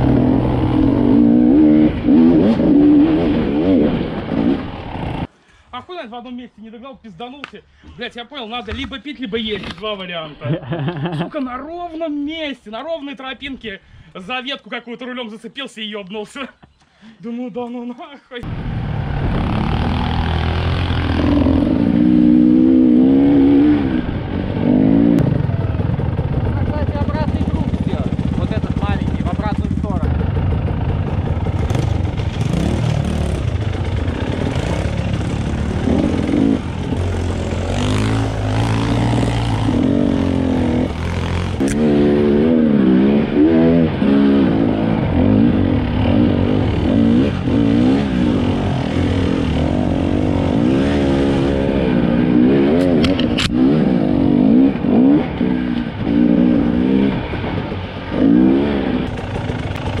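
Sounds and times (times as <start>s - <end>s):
dirt bike engine revving: 0.0s - 5.3s, 18.4s - 60.0s.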